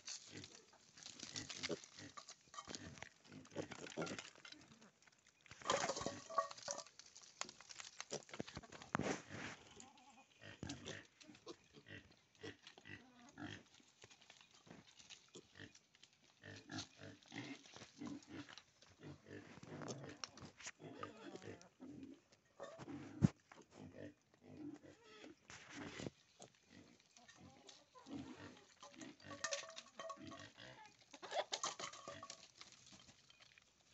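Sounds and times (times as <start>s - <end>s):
hooves scuffing stony ground: 0.0s - 21.6s, 24.8s - 33.9s
piglets grunting: 16.4s - 26.1s, 26.8s - 29.4s.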